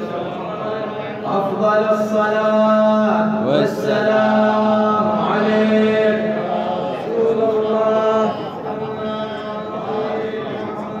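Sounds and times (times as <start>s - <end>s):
man chanting: 0.0s - 11.0s.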